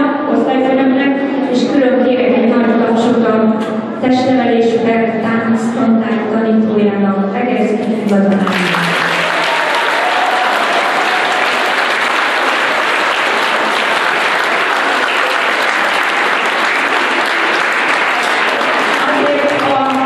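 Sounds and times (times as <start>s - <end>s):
children clapping: 8.3s - 20.0s.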